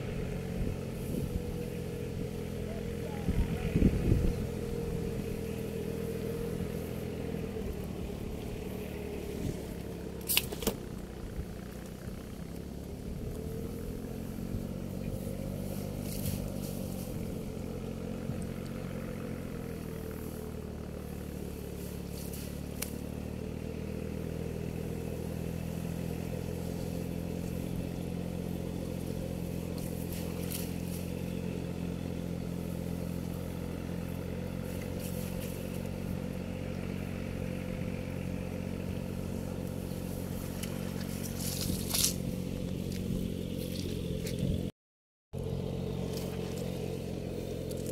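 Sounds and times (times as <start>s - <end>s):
engine running: 0.0s - 44.7s, 45.3s - 47.9s
clatters and scrapes: 40.5s - 44.5s.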